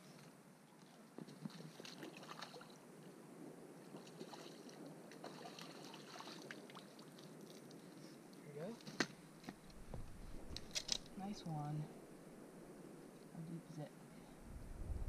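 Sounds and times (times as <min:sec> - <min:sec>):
small water splashes and sloshing: 0:00.1 - 0:03.1, 0:03.8 - 0:09.1.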